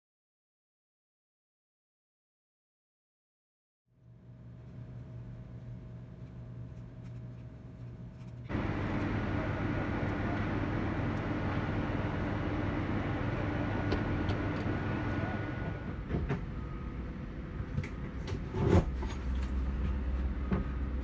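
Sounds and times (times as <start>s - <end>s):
low room hum: 3.9s - 21.0s
faint high machinery whine: 4.0s - 21.0s
airport ramp rumble and hiss: 8.5s - 18.4s.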